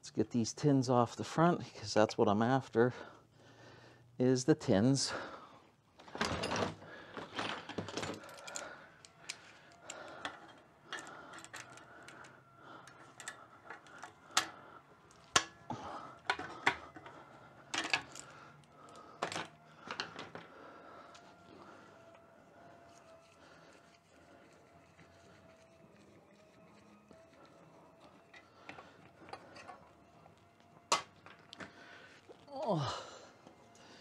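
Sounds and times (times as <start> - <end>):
hand tools clicking on metal: 8.0 - 15.6.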